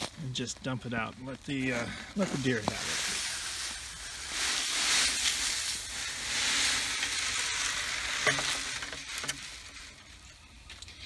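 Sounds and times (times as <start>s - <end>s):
pellets pouring from plastic bucket: 2.4s - 10.0s.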